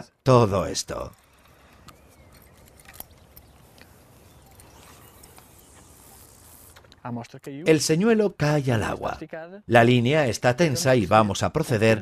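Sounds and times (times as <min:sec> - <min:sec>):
faint chirp: 0:01.1 - 0:06.9.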